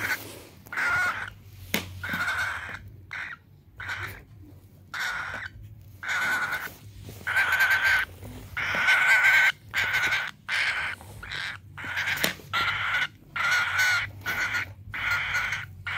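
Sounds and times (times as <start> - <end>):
cockatiel harsh raspy calls: 0.0 - 15.9.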